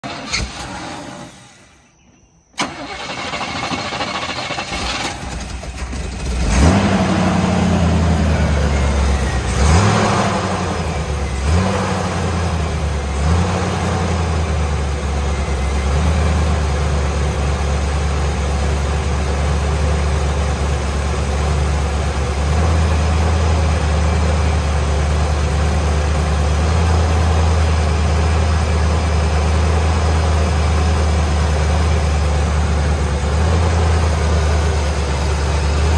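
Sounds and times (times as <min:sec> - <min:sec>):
car engine cranking and starting: 0:00.0 - 0:35.9
car engine revving: 0:02.6 - 0:17.5
car engine idling: 0:02.6 - 0:35.9.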